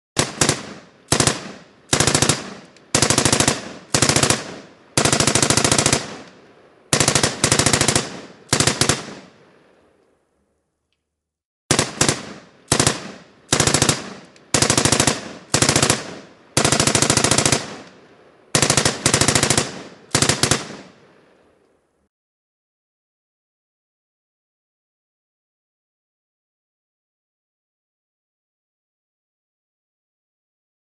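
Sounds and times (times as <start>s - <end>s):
machine gun firing bursts: 0.2s - 6.3s, 6.9s - 9.4s, 11.7s - 17.9s, 18.5s - 21.0s.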